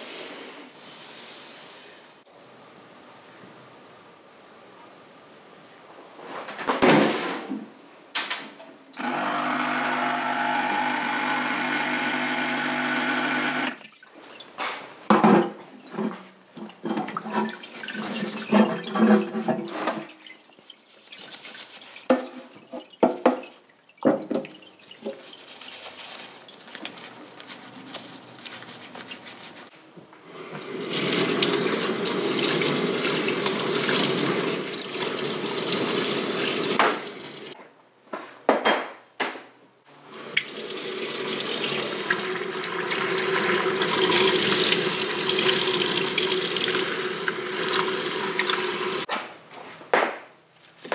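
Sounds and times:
brush scrubbing and splashing: 16.9 - 29.7, 30.6 - 37.6.

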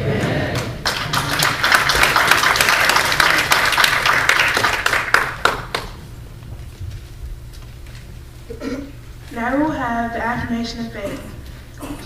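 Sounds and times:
congregation applauding: 0.2 - 6.0.

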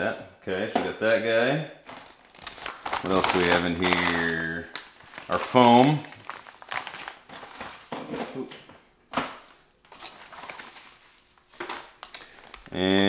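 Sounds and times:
plastic bag crinkling: 1.8 - 8.4, 9.9 - 12.8.

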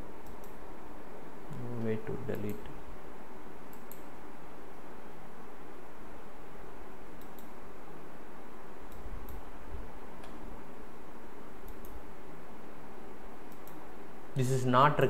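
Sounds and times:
background hiss and hum: 0.0 - 15.0
computer mouse clicking: 0.2 - 0.6, 3.7 - 4.1, 7.2 - 7.6, 8.9 - 9.5, 11.6 - 12.0, 13.5 - 13.8.

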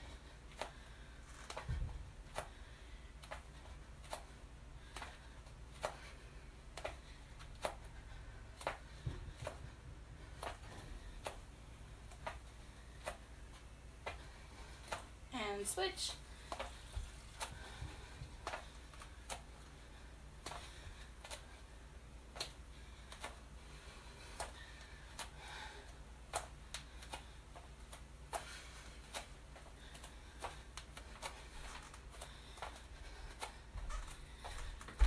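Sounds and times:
bare feet stepping on mat: 26.3 - 35.0.

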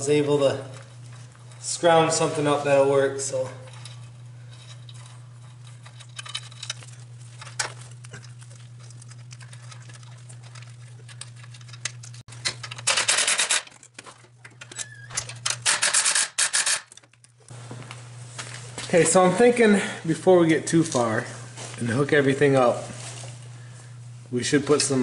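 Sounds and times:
steady low hum: 0.0 - 15.9, 16.8 - 25.0
hand tools clicking and clattering: 3.3 - 8.4
rapid ratchet clicking: 15.6 - 16.9.

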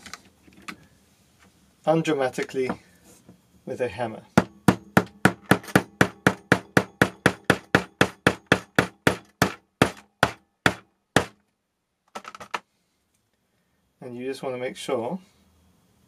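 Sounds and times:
hammer tapping metal nut: 4.4 - 11.4.

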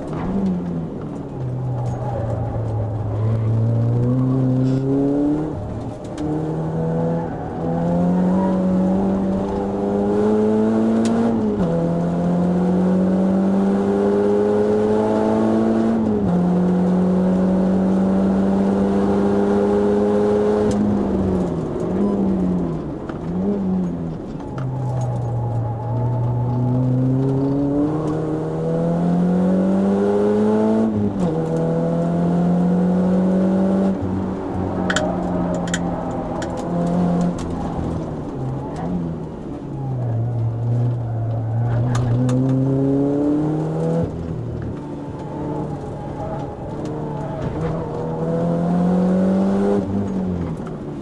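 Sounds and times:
car engine revving through gears: 0.0 - 51.0.

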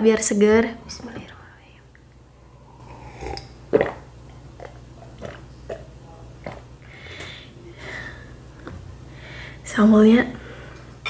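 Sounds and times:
person gulping a drink: 2.8 - 6.7.

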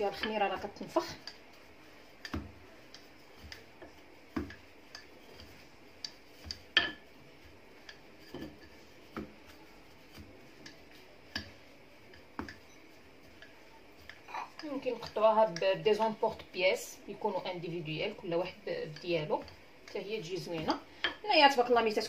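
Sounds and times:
rolling pin knocking on countertop: 3.3 - 4.6, 8.2 - 9.5.

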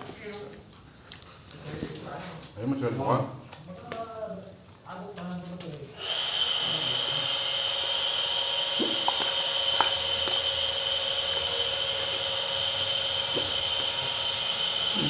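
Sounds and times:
high-pitched whine: 9.8 - 15.0.

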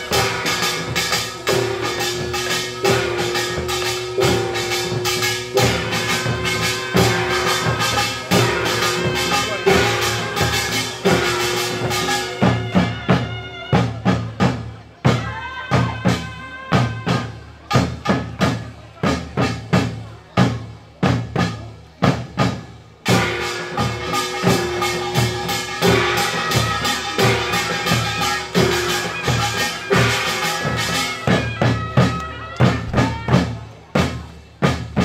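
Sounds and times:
metallic ringing: 0.0 - 12.4
held high tone: 0.0 - 13.2
drums beating driving rhythm: 0.0 - 35.0.

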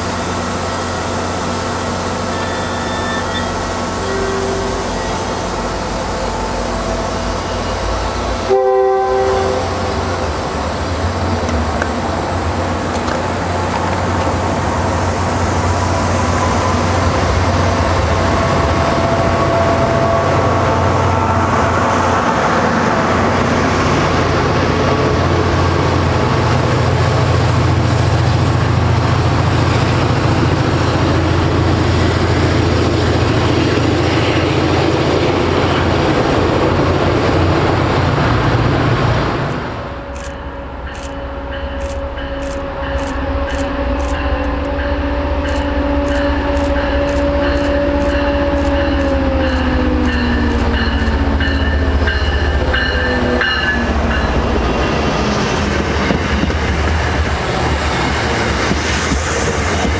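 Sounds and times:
train rolling rumble: 0.0 - 59.9
train horn blast: 0.5 - 10.3, 15.9 - 22.0, 39.7 - 51.4.

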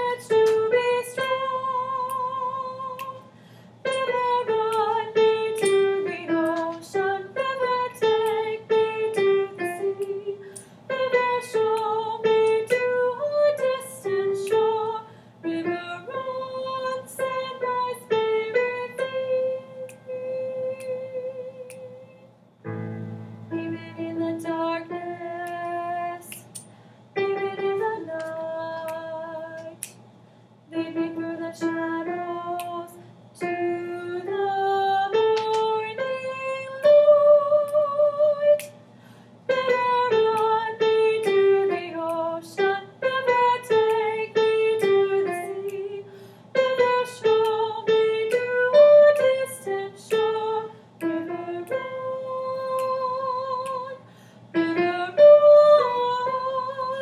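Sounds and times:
woman singing: 0.0 - 22.3, 23.5 - 26.6, 27.2 - 29.9, 30.7 - 38.8, 39.5 - 57.0
digital piano chords: 22.7 - 25.7.

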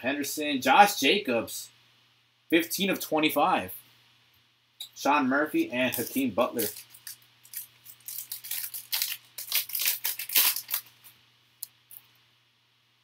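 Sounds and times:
foil wrapper tearing and crinkling: 5.8 - 11.0.

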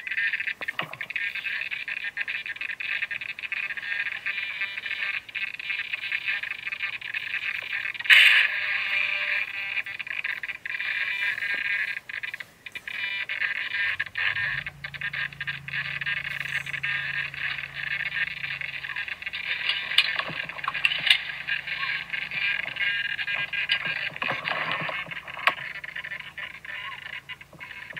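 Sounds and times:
low hum: 9.1 - 27.9
toy helicopter motor whine: 12.9 - 24.2.

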